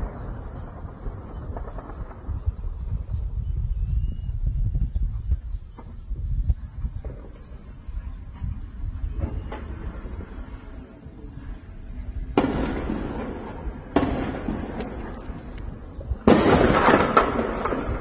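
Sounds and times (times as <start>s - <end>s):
explosions booming: 0.0s - 3.7s, 12.2s - 18.0s
gunshot cracks: 16.3s - 18.0s.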